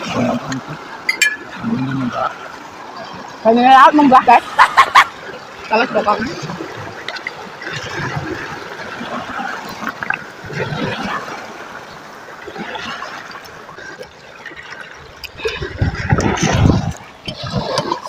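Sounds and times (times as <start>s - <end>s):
waves washing over pebbly shore: 2.9s - 18.0s.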